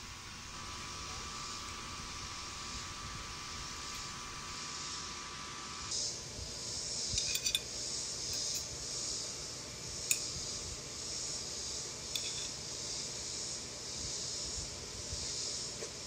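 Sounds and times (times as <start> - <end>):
steady high hiss: 0.0 - 16.0
tableware clinking: 7.2 - 7.7.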